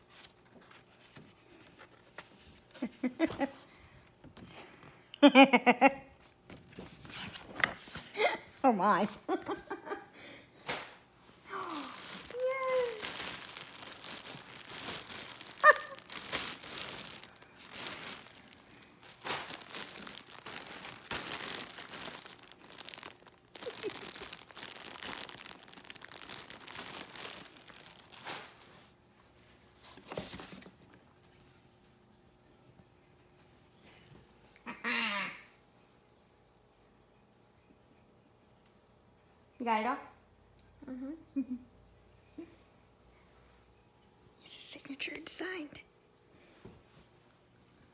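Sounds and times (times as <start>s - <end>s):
packaging crinkling and rustling: 11.5s - 29.0s.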